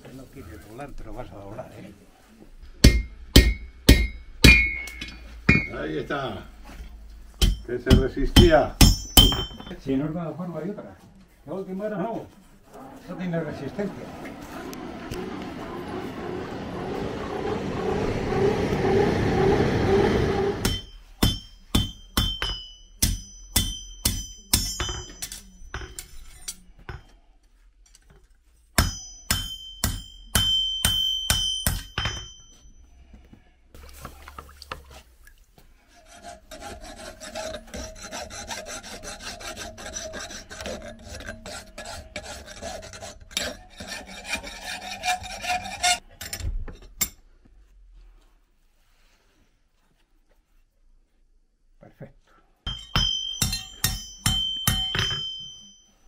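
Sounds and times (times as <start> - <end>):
hammer ringing on anvil: 2.8 - 5.8, 7.4 - 9.8, 20.6 - 26.1, 28.8 - 32.8, 52.7 - 56.0
hand file rasping on metal: 35.9 - 46.0.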